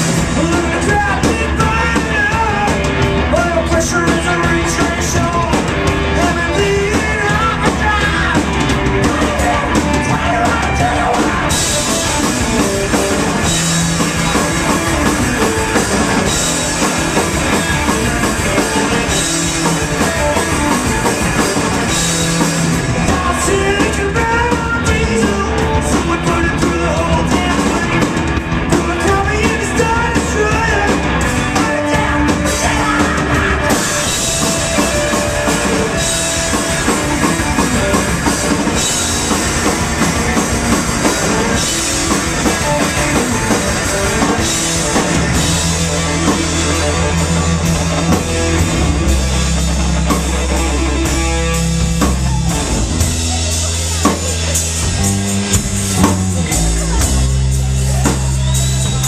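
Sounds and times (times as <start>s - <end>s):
bass: 0.0s - 59.0s
drum kit: 0.0s - 59.0s
electric guitars: 0.0s - 59.0s
man singing into a microphone: 0.2s - 12.2s, 23.0s - 34.2s.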